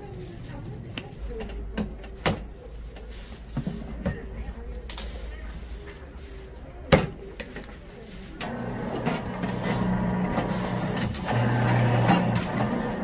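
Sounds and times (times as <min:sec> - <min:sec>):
cane crackling in rollers: 0:08.0 - 0:13.0
juicer motor hum: 0:08.4 - 0:13.0.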